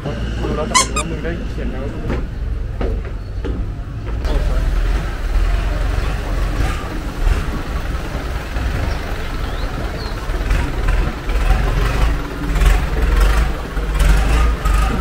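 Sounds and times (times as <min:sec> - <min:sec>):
boat engine rumbling: 0:04.3 - 0:15.0.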